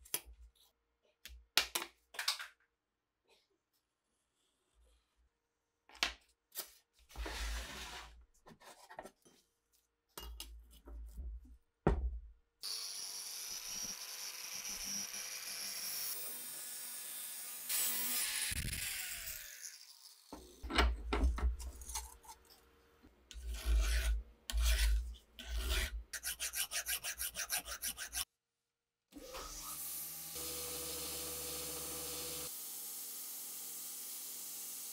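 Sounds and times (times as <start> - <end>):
rasping strokes on metal: 23.3 - 28.3.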